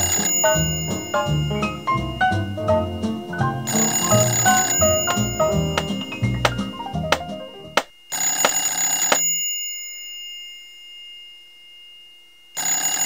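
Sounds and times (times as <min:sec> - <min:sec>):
telephone bell ringing: 0:00.0 - 0:01.9, 0:03.7 - 0:06.2, 0:08.1 - 0:11.5, 0:12.6 - 0:13.0
falling musical notes: 0:00.0 - 0:07.8.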